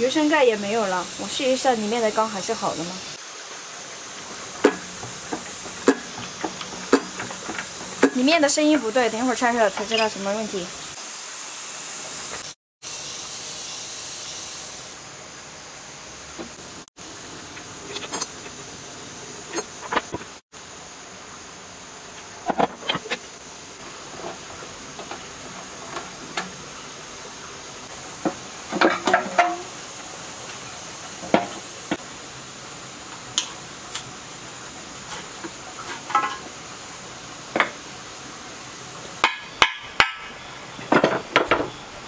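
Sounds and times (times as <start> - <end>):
metallic clinks of wrench and parts: 17.9 - 18.5.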